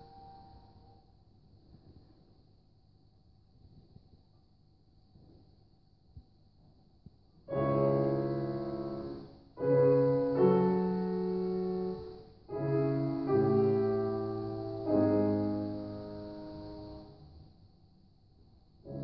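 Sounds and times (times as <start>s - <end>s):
piano playing slow chords: 0.0s - 1.0s, 7.5s - 17.3s.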